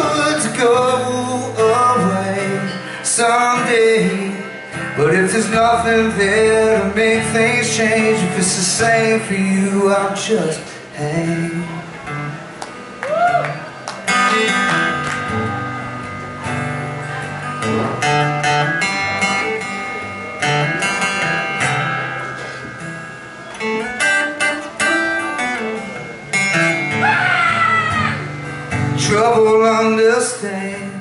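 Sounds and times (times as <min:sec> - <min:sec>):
man singing: 0:00.0 - 0:12.2, 0:26.9 - 0:31.0
acoustic guitar: 0:00.0 - 0:31.0.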